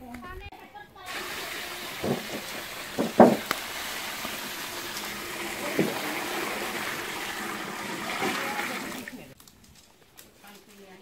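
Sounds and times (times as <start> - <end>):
water pouring into metal tray: 1.1 - 9.4.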